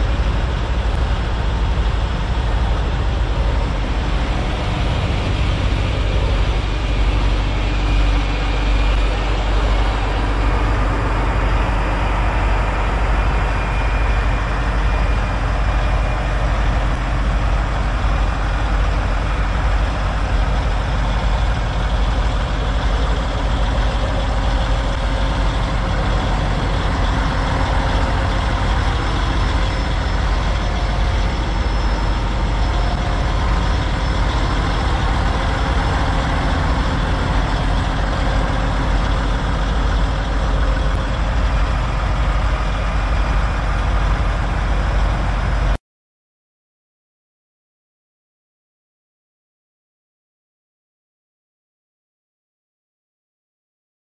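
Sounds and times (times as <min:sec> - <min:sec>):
diesel truck engines idling: 0:00.0 - 0:45.8.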